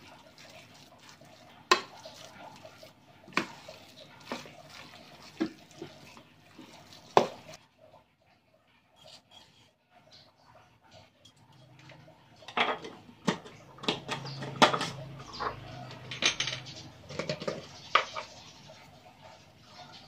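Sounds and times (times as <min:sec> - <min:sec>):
glass jars clinking: 0:12.5 - 0:18.3.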